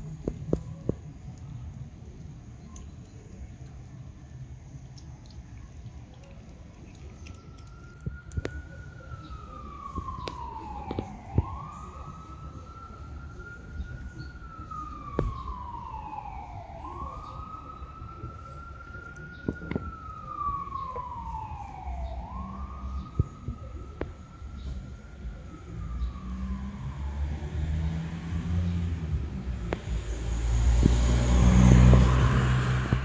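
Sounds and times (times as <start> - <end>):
siren wailing: 7.0 - 33.0.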